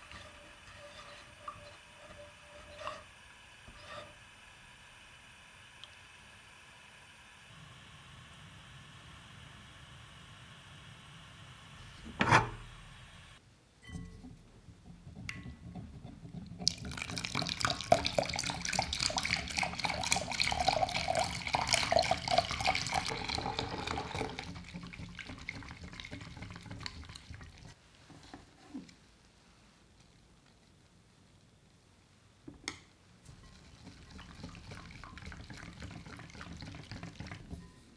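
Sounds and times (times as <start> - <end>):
whisk ticking against glass: 13.8 - 27.8
milk pouring into a bowl: 16.5 - 27.8.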